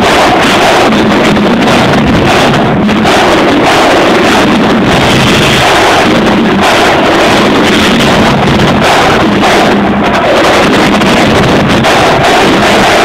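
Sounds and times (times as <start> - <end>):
distorted marching drumline: 0.0 - 13.0.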